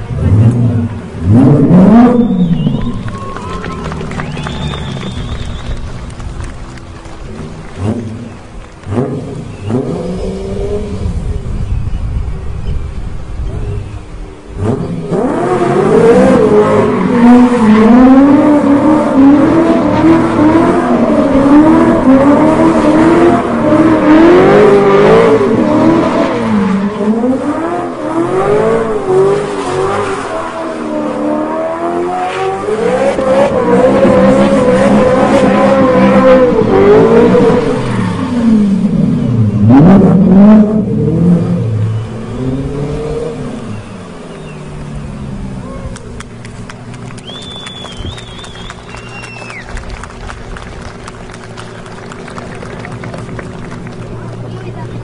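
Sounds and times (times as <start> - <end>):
car engine revving hard: 0.0 - 5.7, 6.4 - 11.5, 14.5 - 45.9.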